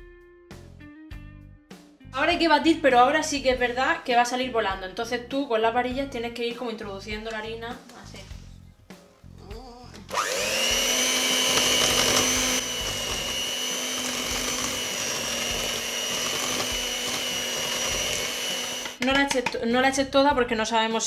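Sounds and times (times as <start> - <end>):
electric hand mixer whine: 10.1 - 19.0.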